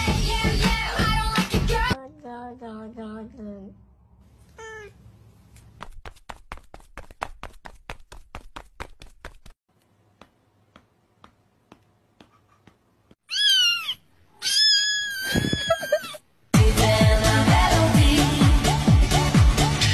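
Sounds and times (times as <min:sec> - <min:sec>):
cat meowing: 0:04.5 - 0:05.0, 0:13.3 - 0:16.2
music with heavy bass beat: 0:16.6 - 0:19.9.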